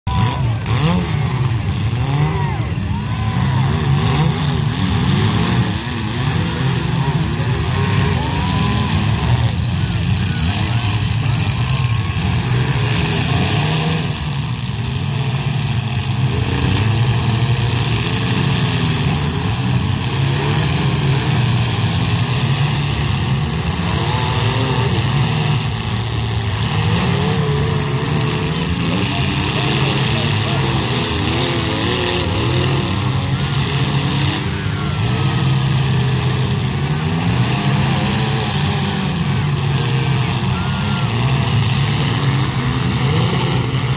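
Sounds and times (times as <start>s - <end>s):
car engines revving: 0.0s - 43.9s.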